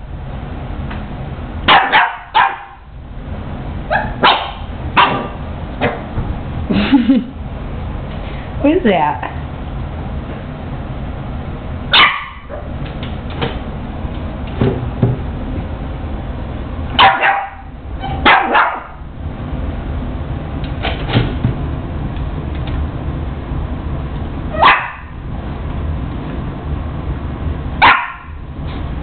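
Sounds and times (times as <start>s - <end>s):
puppy barking: 1.7s - 2.9s, 3.9s - 5.4s, 11.9s - 12.8s, 17.0s - 19.0s, 24.5s - 25.2s, 27.8s - 28.4s.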